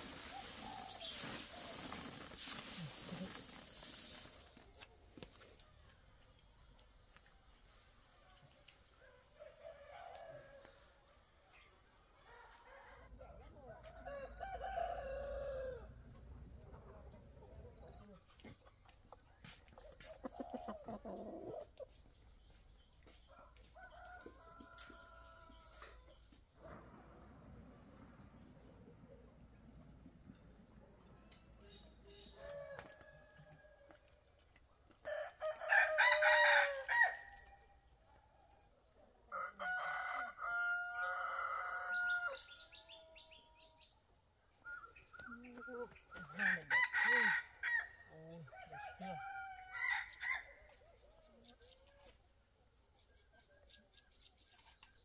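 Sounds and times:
rooster crowing: 14.1s - 15.9s, 35.0s - 37.4s, 39.3s - 42.5s, 46.4s - 50.6s
chickens clucking: 16.1s - 23.1s.

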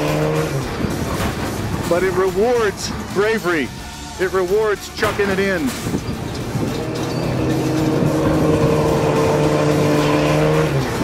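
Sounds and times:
music with long held notes: 0.0s - 11.0s
truck engine running: 0.0s - 11.0s.

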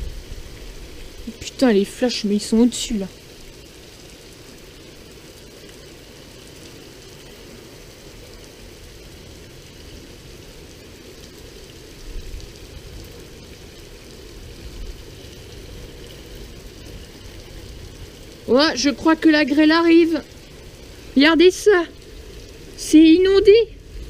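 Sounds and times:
heavy rain: 0.0s - 24.0s.

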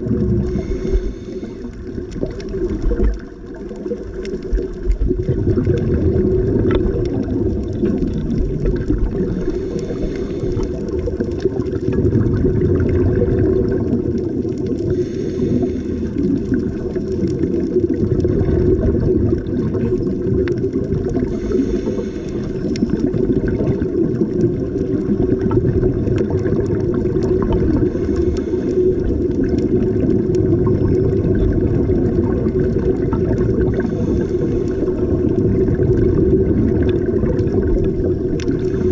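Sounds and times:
crackles: 0.0s - 38.9s
exhaled bubbles: 0.0s - 38.9s
low rumble of water: 0.0s - 38.9s
scuba regulator hiss: 0.5s - 1.7s, 9.4s - 10.8s, 14.9s - 16.1s, 21.3s - 22.6s.

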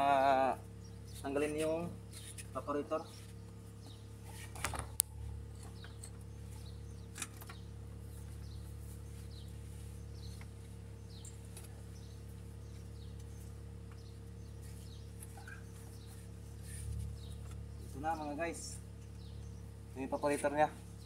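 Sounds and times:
steady low hum: 0.0s - 21.0s
faint bird chirps: 5.7s - 18.4s.

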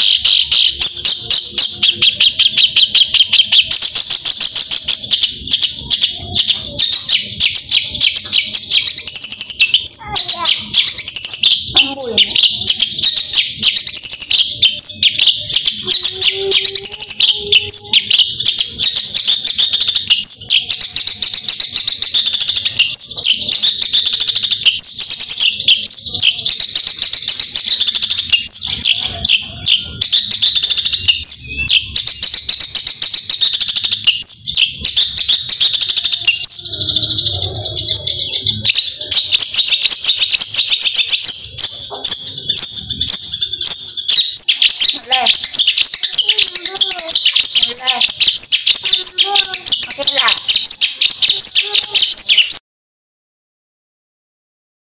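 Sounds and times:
bird chattering song: 0.0s - 52.6s.

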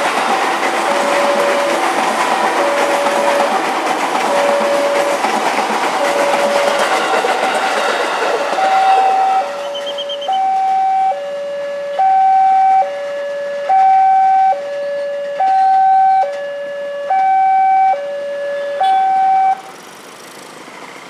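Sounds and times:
level crossing two-tone alarm: 0.9s - 1.8s, 4.3s - 5.1s, 6.0s - 6.9s, 8.6s - 13.0s, 13.6s - 19.6s.

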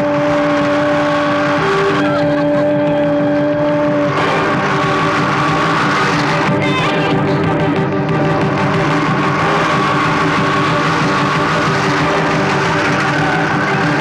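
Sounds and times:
long steady tones: 0.0s - 14.0s
auto-rickshaw engines running: 7.6s - 14.0s.

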